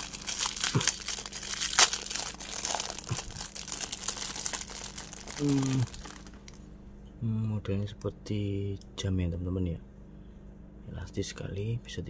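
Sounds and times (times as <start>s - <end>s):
plastic wrap crinkling and tearing: 0.0s - 6.6s
plastic wrap snap: 0.0s - 6.6s.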